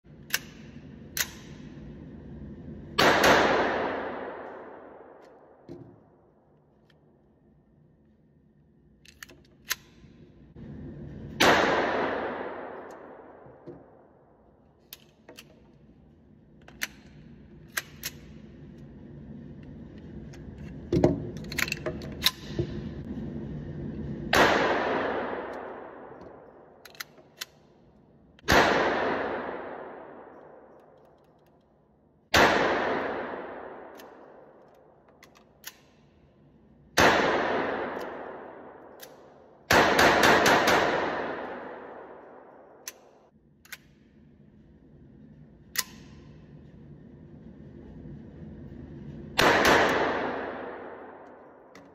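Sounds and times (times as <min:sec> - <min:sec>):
metallic clicks of gun action: 0:00.2 - 0:01.7, 0:09.0 - 0:10.2, 0:16.6 - 0:18.5, 0:20.4 - 0:22.6, 0:25.5 - 0:27.8, 0:30.4 - 0:31.8, 0:33.9 - 0:36.2, 0:42.8 - 0:44.2, 0:45.6 - 0:46.4
pistol shots with ringing echo: 0:03.0 - 0:05.6, 0:11.4 - 0:14.0, 0:28.5 - 0:30.7, 0:32.3 - 0:34.4, 0:37.0 - 0:42.8, 0:49.4 - 0:51.7.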